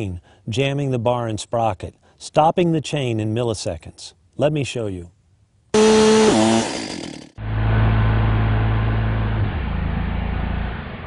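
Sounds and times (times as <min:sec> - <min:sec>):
chainsaw revving: 0:05.8 - 0:07.4
low saw engine running: 0:05.8 - 0:10.6.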